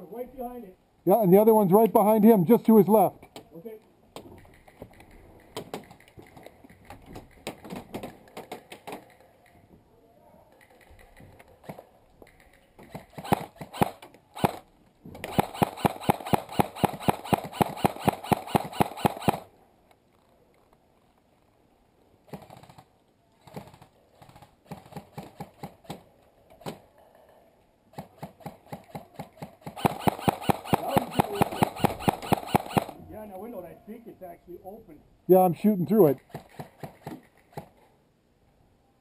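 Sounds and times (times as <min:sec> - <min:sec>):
airsoft rifle firing bursts: 0:12.9 - 0:19.5, 0:28.0 - 0:33.0.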